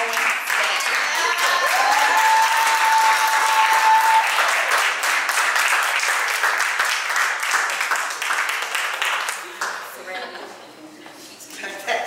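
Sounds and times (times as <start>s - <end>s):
audience applauding: 0.0s - 9.8s
person cheering high: 1.0s - 4.5s.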